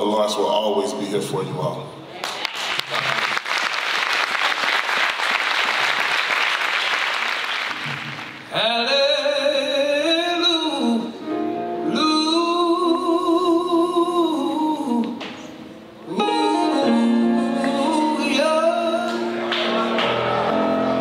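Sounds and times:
audience applause: 2.2 - 8.5, 19.4 - 21.0
person singing with vibrato: 8.4 - 21.0
sustained instrumental accompaniment: 15.2 - 21.0.

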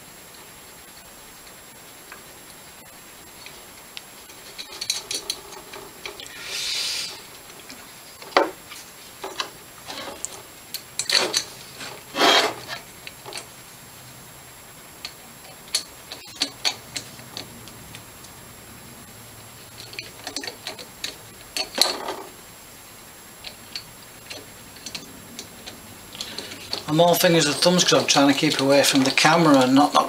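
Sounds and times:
metal parts clicking and knocking: 4.3 - 6.3, 9.2 - 13.5, 15.0 - 17.5, 19.7 - 22.3, 23.4 - 30.0
metal scraping: 8.7 - 13.4.

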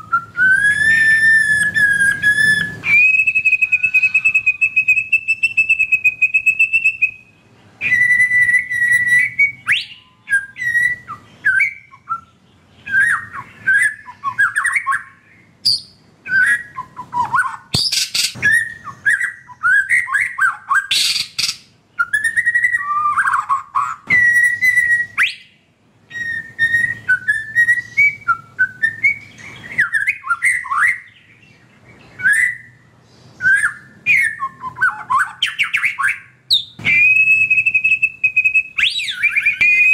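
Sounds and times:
bird singing whistled song: 0.0 - 39.9
bird harsh rapid chatter: 17.2 - 18.7.

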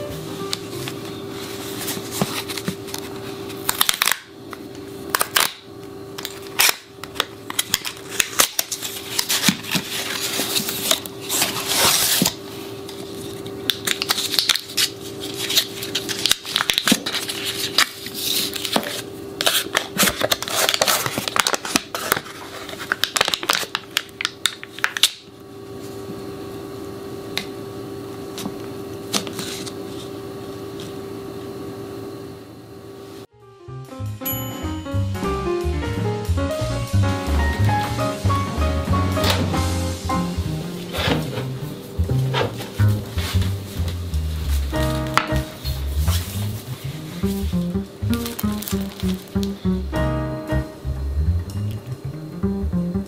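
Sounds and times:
faint steady hum: 0.0 - 53.0
foil wrapper crinkling and tearing: 2.3 - 4.3, 5.1 - 5.6, 6.2 - 25.2, 45.8 - 49.7.

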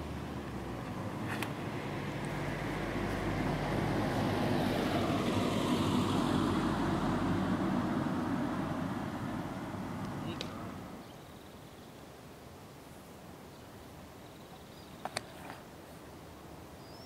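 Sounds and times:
vehicle passing by: 0.0 - 11.0.

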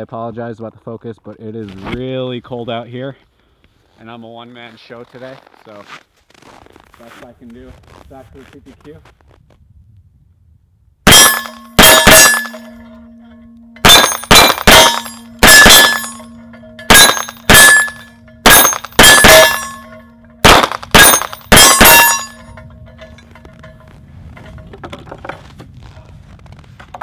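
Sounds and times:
pistol shots: 11.1 - 12.7, 13.8 - 16.3, 16.9 - 19.8, 20.4 - 22.4.

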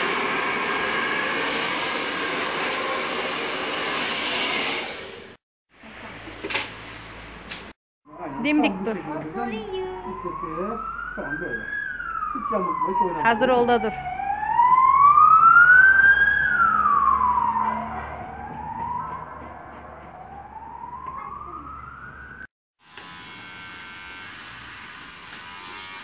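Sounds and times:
siren wailing: 8.1 - 22.5
electric hair clipper buzzing: 22.8 - 26.0.

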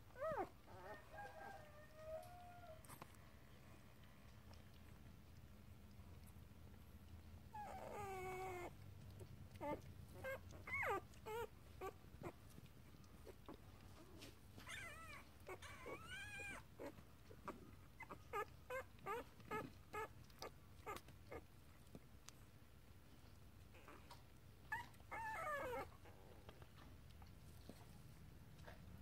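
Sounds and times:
puppy whimpering and yipping: 0.1 - 2.9, 7.5 - 21.5, 23.7 - 26.1.

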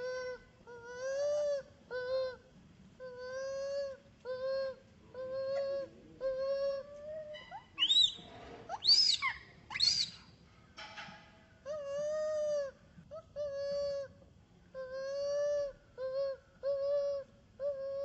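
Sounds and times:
infant monkey whimpering: 0.0 - 8.1, 11.7 - 18.0
shrill monkey calls: 3.2 - 10.3.

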